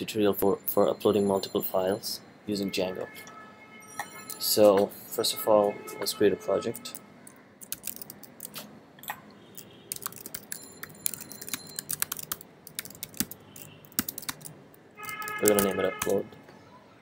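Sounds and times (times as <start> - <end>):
keyboard typing: 6.8 - 8.7, 9.6 - 16.2.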